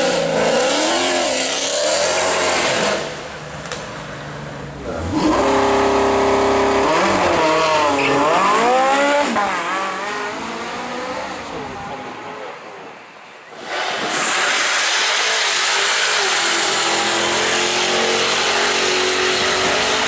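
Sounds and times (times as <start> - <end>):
car engine revving: 4.8 - 12.5, 13.6 - 20.0.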